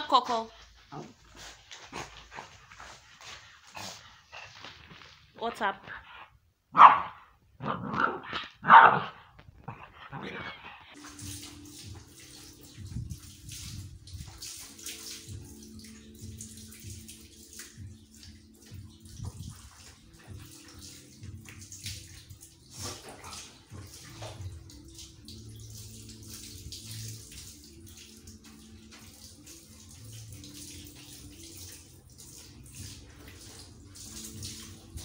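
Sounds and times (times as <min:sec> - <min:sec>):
water splashing and trickling: 0:00.0 - 0:05.7, 0:10.9 - 0:35.0
water poured over dog: 0:11.0 - 0:35.0
water running onto floor: 0:11.0 - 0:35.0.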